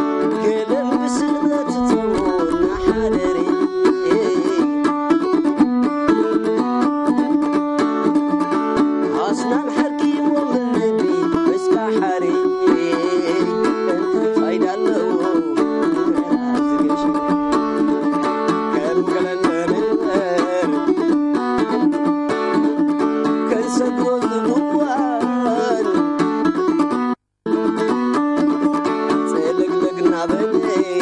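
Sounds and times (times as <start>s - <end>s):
man singing: 0.0s - 5.4s, 9.0s - 26.3s, 28.4s - 31.0s
lyre plucked: 1.5s - 4.6s, 14.9s - 21.2s.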